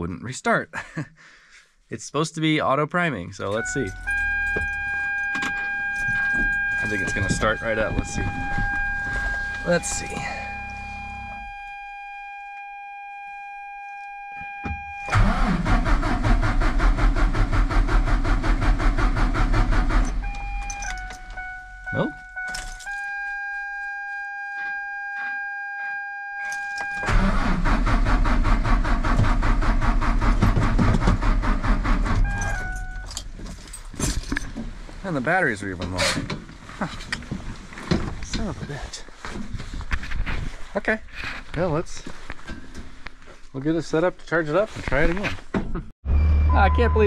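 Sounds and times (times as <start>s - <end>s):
diesel engine cranking on starter: 3.6s - 11.4s, 15.0s - 21.4s, 26.8s - 33.4s
steady high whine: 3.7s - 15.2s.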